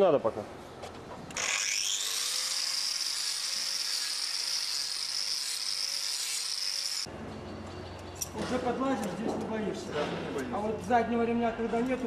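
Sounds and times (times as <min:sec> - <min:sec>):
angle grinder whine: 0:01.3 - 0:07.1.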